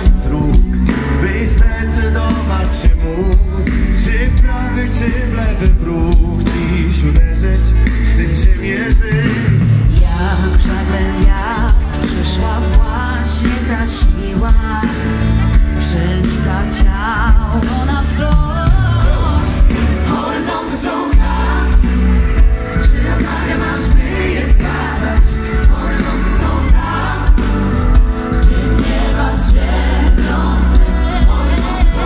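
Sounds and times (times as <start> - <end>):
heavy bass and drums: 0.0 - 32.0
singers with wavering lines: 18.2 - 22.2.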